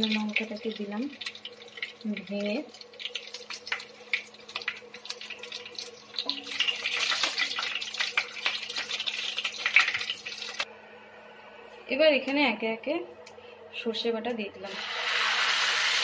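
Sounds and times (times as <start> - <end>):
spices sizzling in hot oil: 0.0 - 10.7, 14.6 - 16.0
steady low hum: 10.6 - 14.7.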